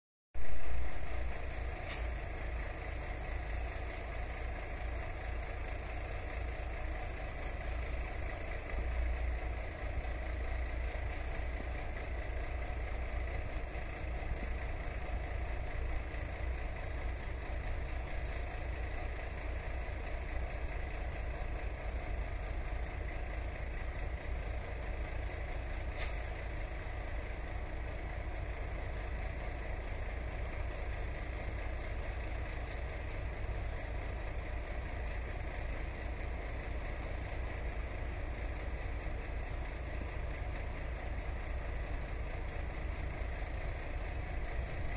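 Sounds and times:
distant road traffic rumble: 0:00.4 - 0:44.9
faint tick: 0:21.2 - 0:21.4, 0:38.0 - 0:38.2.

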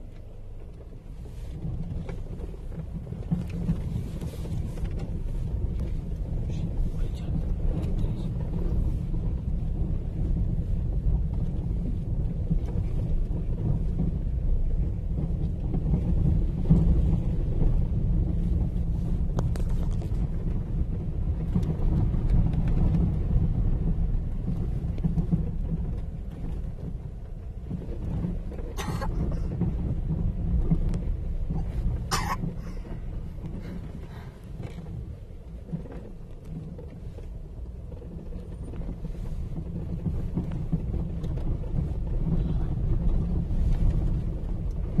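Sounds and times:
car rumbling over rough road: 0:00.0 - 0:45.0.

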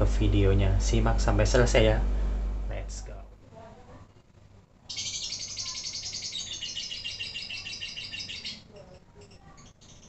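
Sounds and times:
lovebird chattering trill: 0:04.9 - 0:10.0.

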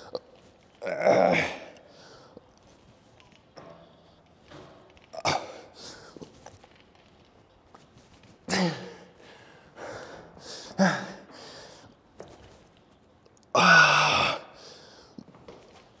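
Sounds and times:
man groaning: 0:13.6 - 0:14.6.

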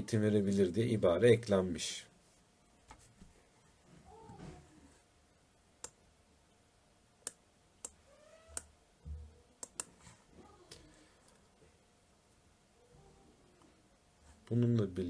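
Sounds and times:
sharp clicks: 0:09.6 - 0:09.9.

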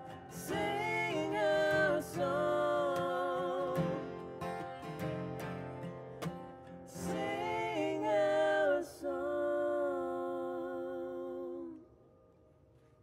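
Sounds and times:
person singing: 0:00.0 - 0:04.5, 0:06.9 - 0:11.9
acoustic guitar strum: 0:00.0 - 0:08.6.

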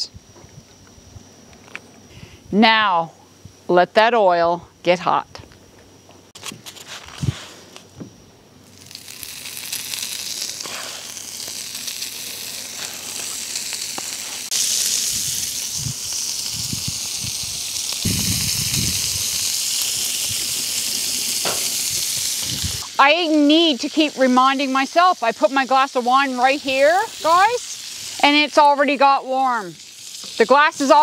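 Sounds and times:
pork sizzling on griddle: 0:08.6 - 0:31.0.

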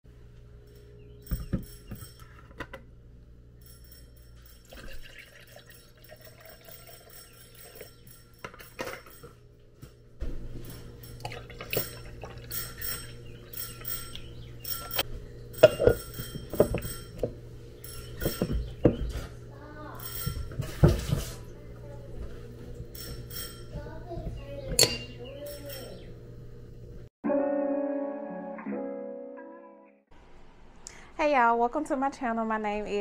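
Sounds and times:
glass clinks and knocks: 0:01.2 - 0:02.8, 0:04.3 - 0:09.4, 0:15.6 - 0:19.2, 0:20.0 - 0:21.1, 0:24.7 - 0:25.9
liquid pouring into glass jar: 0:04.6 - 0:07.8, 0:11.2 - 0:12.8.

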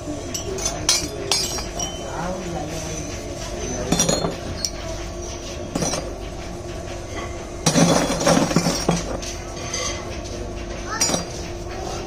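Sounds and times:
steady hum: 0:00.0 - 0:12.0
brass lamps clinking: 0:00.3 - 0:05.1.

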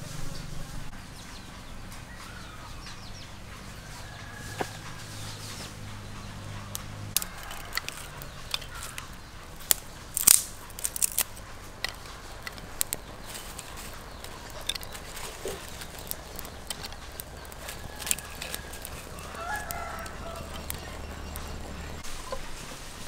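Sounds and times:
twigs cracking in wood fire: 0:06.4 - 0:23.0.

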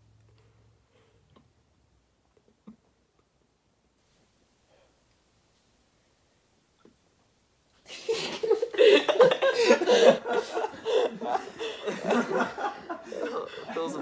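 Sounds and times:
men laughing: 0:07.9 - 0:14.0.

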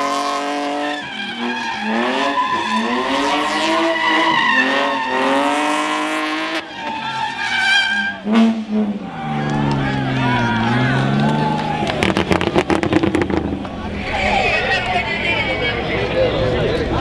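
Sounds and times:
car engine revving: 0:00.0 - 0:17.0
tyres squealing: 0:00.9 - 0:05.7.

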